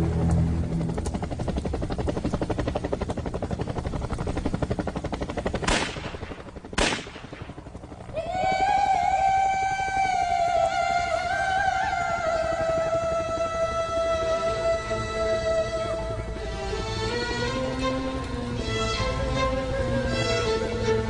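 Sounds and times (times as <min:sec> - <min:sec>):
helicopter pulse: 0:00.0 - 0:21.0
rattle of gunfire: 0:05.5 - 0:07.9.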